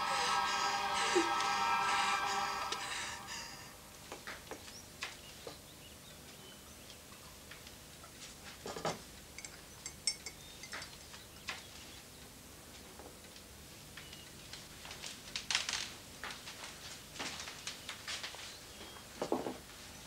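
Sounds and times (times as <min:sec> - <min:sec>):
small clicks and clinks: 0:08.8 - 0:11.2.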